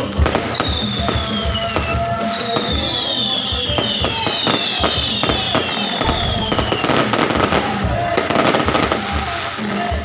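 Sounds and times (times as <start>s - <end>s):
fireworks whistling: 0.0s - 9.9s
fireworks bangs and crackles: 0.0s - 10.0s.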